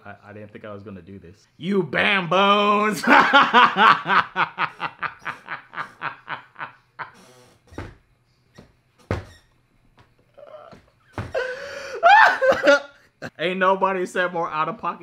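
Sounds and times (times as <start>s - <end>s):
man laughing hard: 2.9s - 7.2s, 11.2s - 13.0s.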